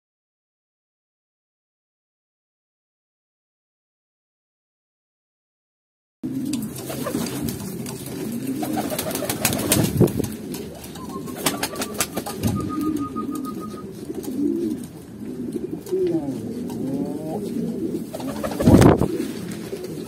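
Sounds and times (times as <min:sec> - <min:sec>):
pigeons cooing: 0:06.2 - 0:20.0.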